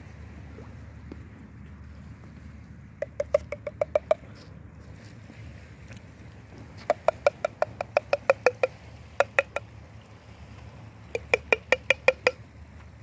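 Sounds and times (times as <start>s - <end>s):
ringing taps on a metal tin: 3.0s - 4.2s, 6.9s - 9.7s, 11.2s - 12.4s.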